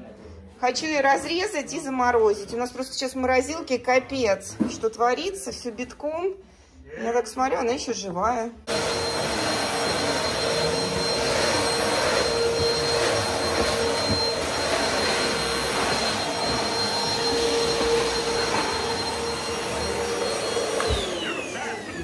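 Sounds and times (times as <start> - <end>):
vacuum cleaner running: 8.7 - 22.0.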